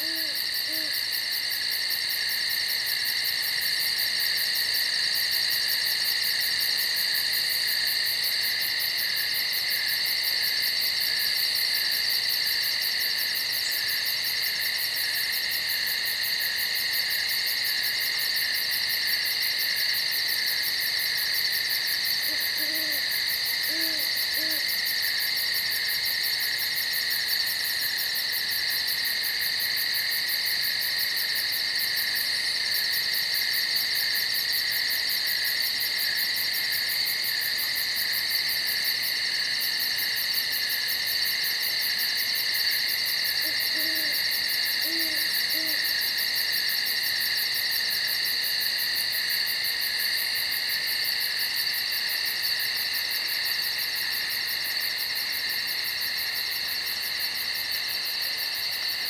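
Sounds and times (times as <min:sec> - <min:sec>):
owl hooting: 0:00.0 - 0:01.0, 0:22.2 - 0:24.8, 0:43.4 - 0:44.2, 0:44.8 - 0:45.9
insects chirring: 0:00.0 - 0:59.0.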